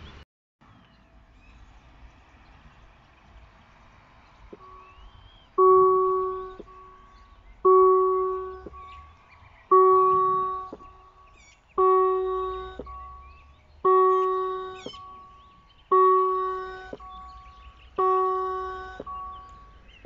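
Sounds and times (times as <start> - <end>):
birds chirping faintly: 0.0 - 20.0
level-crossing warning bell ringing: 5.6 - 20.0.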